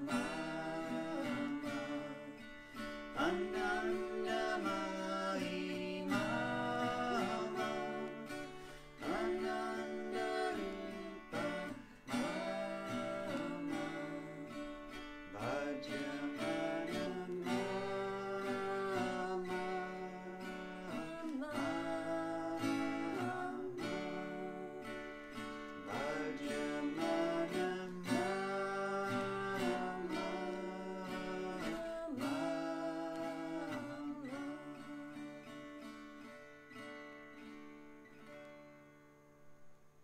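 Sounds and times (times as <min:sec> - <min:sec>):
man singing held phrases: 0:00.0 - 0:02.4, 0:03.1 - 0:25.0, 0:25.8 - 0:35.3
strummed acoustic guitar: 0:00.0 - 0:40.0.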